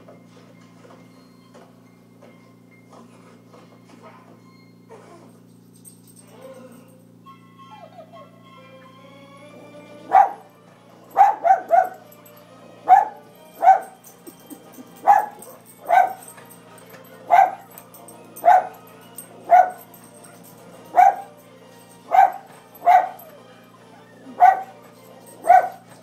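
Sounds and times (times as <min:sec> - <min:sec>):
faint music from television: 0:00.0 - 0:26.0
small dog barking: 0:10.1 - 0:10.5, 0:11.2 - 0:12.0, 0:12.9 - 0:14.0, 0:15.0 - 0:16.2, 0:17.3 - 0:17.7, 0:18.4 - 0:18.9, 0:19.5 - 0:19.9, 0:20.9 - 0:21.4, 0:22.1 - 0:23.3, 0:24.3 - 0:24.8, 0:25.4 - 0:25.9.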